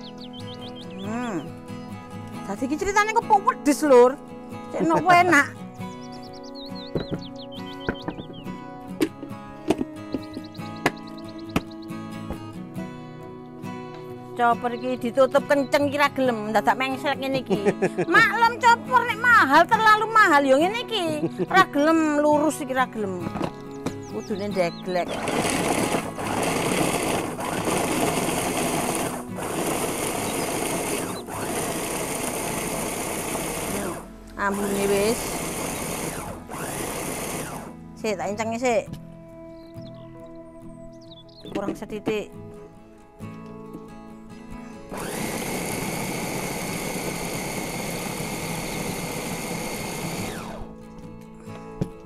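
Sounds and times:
electric food chopper running: 0:25.0 - 0:37.8, 0:44.9 - 0:50.8.

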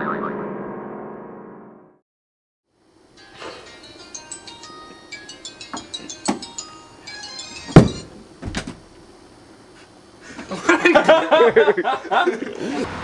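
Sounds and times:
tinkling chime-like melody: 0:03.2 - 0:08.0.

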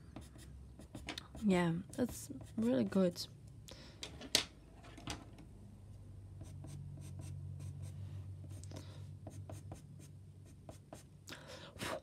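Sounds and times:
pencil scratching on paper: 0:00.0 - 0:03.0, 0:06.4 - 0:08.6, 0:09.2 - 0:11.1
low steady hum: 0:00.0 - 0:12.0.

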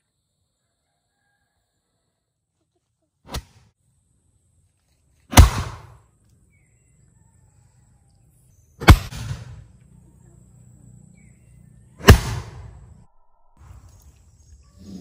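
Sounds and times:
bamboo cannon booms: 0:05.3 - 0:06.0, 0:08.8 - 0:09.6, 0:12.0 - 0:12.8.

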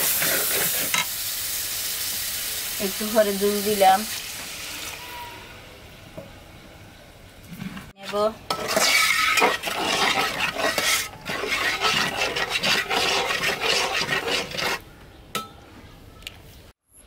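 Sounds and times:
metal spatula scraping pot: 0:08.0 - 0:14.8.

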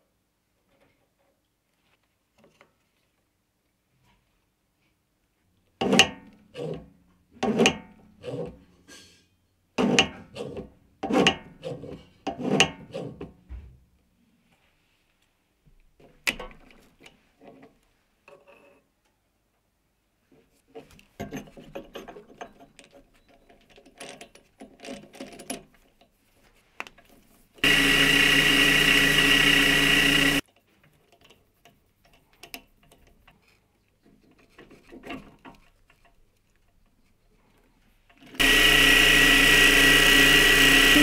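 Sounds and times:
metal parts clicking and scraping: 0:21.2 - 0:25.9
small electric motor running: 0:27.6 - 0:30.4, 0:38.4 - 0:41.0.

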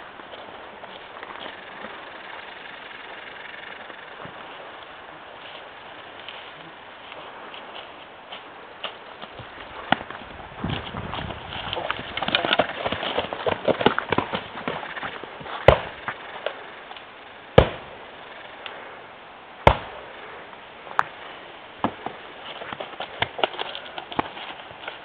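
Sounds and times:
footsteps crunching through leaves: 0:04.2 - 0:12.1.

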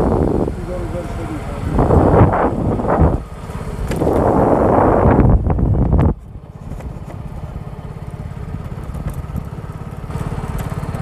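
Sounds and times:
wind buffeting microphone: 0:00.0 - 0:07.6
motorcycle engine running slowly: 0:00.0 - 0:11.0.

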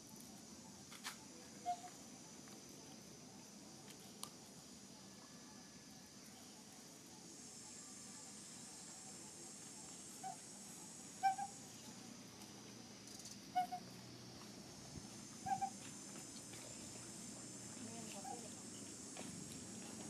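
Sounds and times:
high-pitched background hiss: 0:00.0 - 0:20.0
bird hooting calls: 0:11.2 - 0:11.6, 0:15.4 - 0:15.8.

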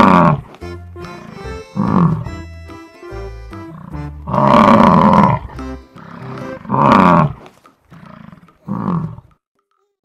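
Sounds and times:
bison bellowing: 0:00.0 - 0:00.5, 0:01.2 - 0:02.3, 0:03.6 - 0:09.2
background music: 0:00.0 - 0:07.4.

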